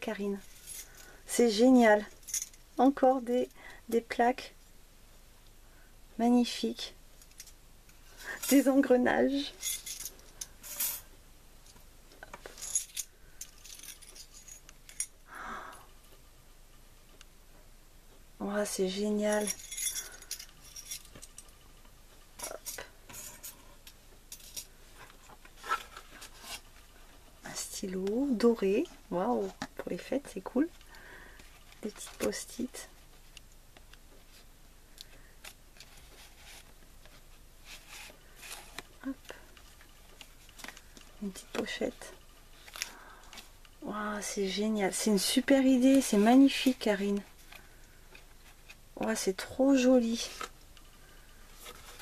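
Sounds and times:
soft rustle: 18.6 - 52.0
paper rustling and scraping: 35.8 - 38.9.

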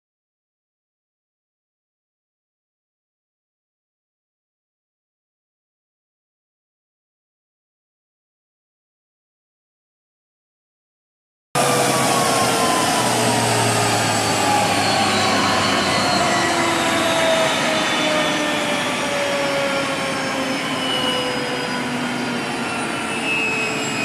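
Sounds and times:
jet engine rushing hiss: 11.6 - 24.0
jet engine whining tones: 11.6 - 24.0.

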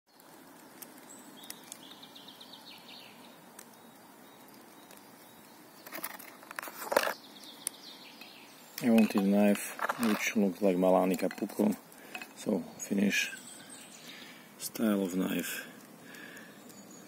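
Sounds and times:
knife scraping and knocking on wood: 8.8 - 10.4, 11.0 - 12.4.

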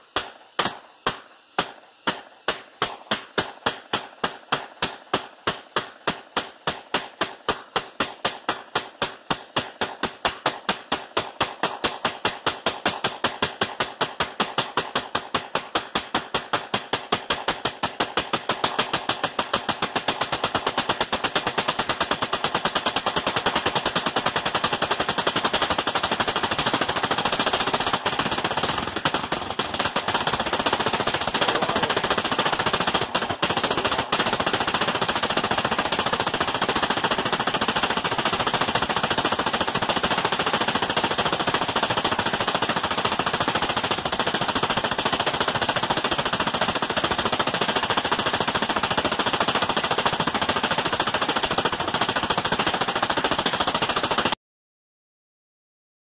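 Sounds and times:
pulse jet engine rattling: 28.5 - 34.1.

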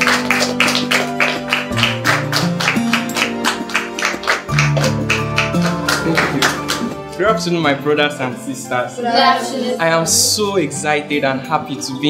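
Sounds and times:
people clapping quickly: 0.0 - 7.1
background music with low notes: 0.0 - 12.0.

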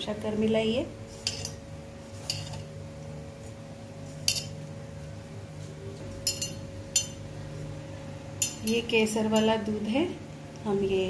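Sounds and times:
steady low hum: 0.0 - 11.0
metallic clinks against bowl: 6.2 - 7.2.

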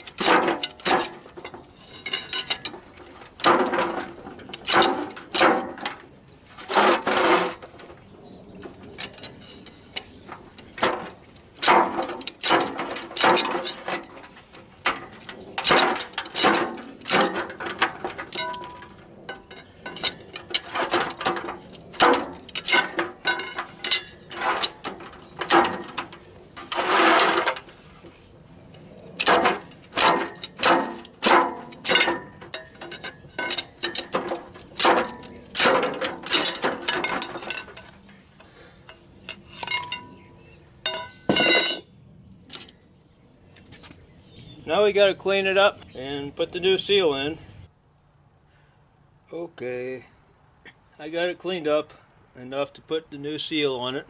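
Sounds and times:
pry bar clanking and scraping metal: 0.0 - 42.8.

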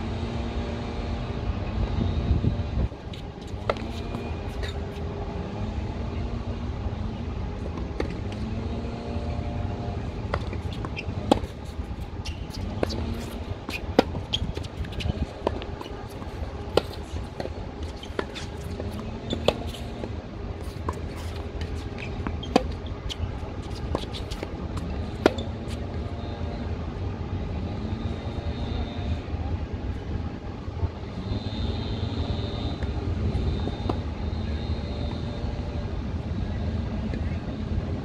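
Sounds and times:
steady low rumble: 0.0 - 38.0
tennis racquets hitting ball: 3.4 - 5.0, 9.7 - 26.0.

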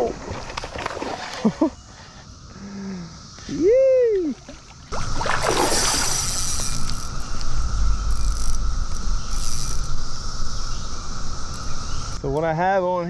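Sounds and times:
cicada chorus droning: 0.0 - 13.0
wind rumbling on microphone: 4.9 - 12.3.

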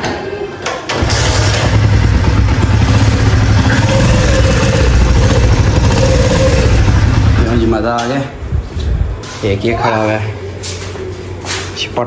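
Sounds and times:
motorcycle engine starting and running: 0.9 - 8.0.

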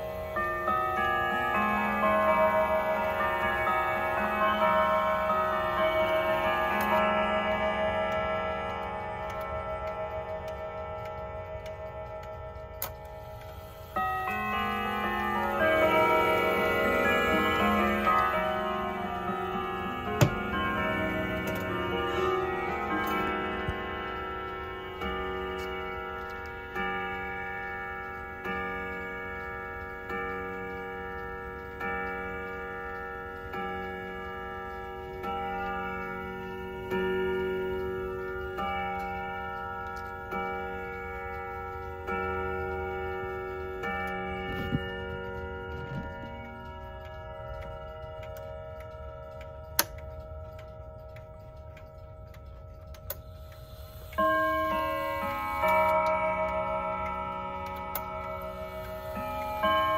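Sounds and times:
pendulum clock ticking: 0.0 - 59.9
wall clock striking: 0.0 - 59.9.

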